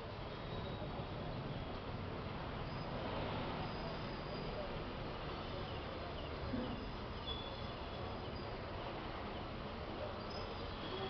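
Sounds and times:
faint high chirps: 6.7 - 8.6.

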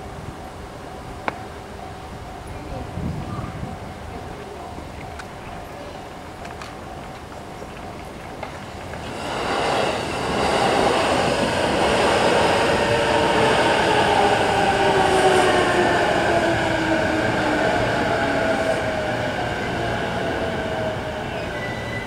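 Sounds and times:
train wheels rumbling on rails: 0.0 - 22.0.

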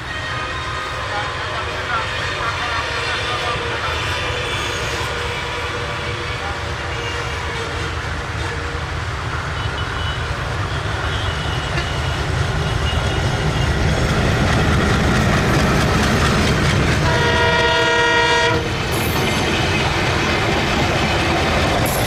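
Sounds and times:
locomotive horn blast: 0.0 - 8.9, 9.6 - 13.6, 17.0 - 18.8
diesel locomotive engine rumble: 0.0 - 22.0.

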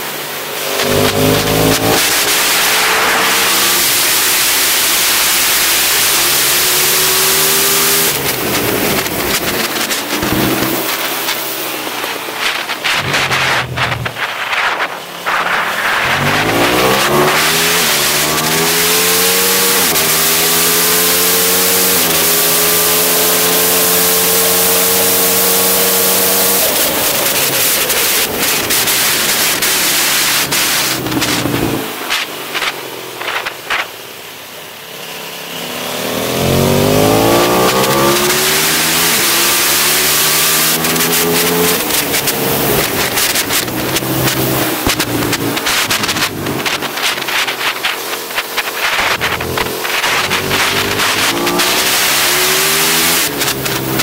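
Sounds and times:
motorcycle engine upshifting: 0.0 - 54.0
wind rush on microphone: 7.2 - 18.7.

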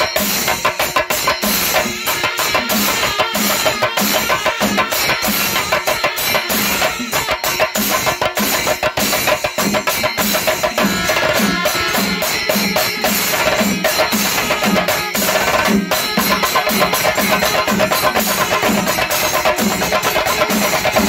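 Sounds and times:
drum ensemble playing rapid strokes: 0.0 - 21.0.

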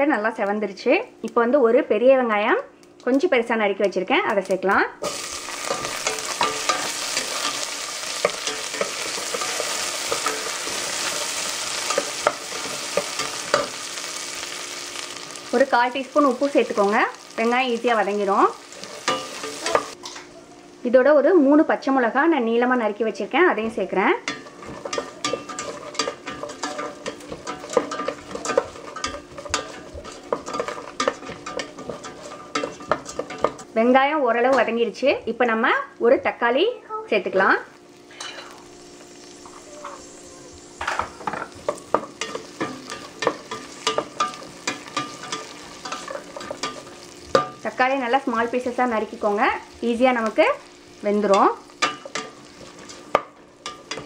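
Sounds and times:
onion frying with sizzle: 0.0 - 54.0
wooden spatula scraping pot: 24.2 - 33.7.

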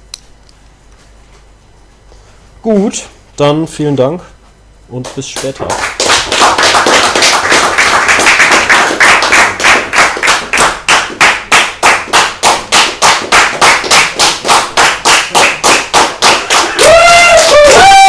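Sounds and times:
audience applauding: 5.4 - 18.0.

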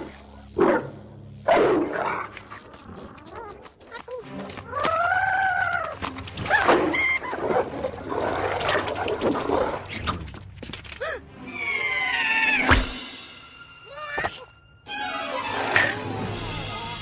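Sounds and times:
squealing cries and yelps: 11.4 - 12.7.

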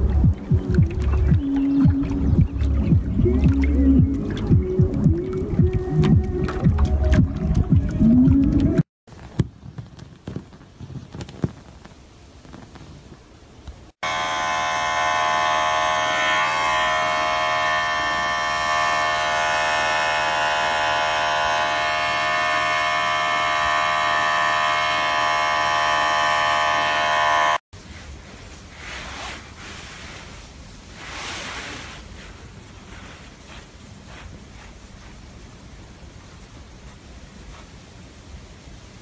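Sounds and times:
electric clippers humming: 14.0 - 27.6.

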